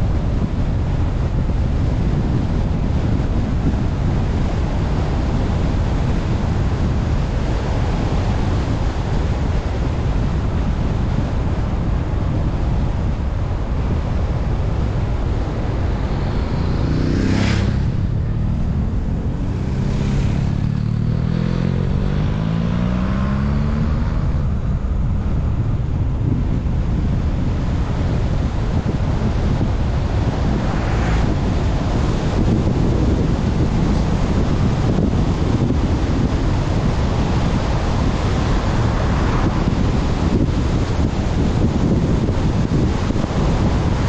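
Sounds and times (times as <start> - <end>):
wind and road rumble: 0.0 - 44.0
passing vehicle engine: 13.8 - 44.0
air whooshes: 14.8 - 25.7, 29.0 - 33.0.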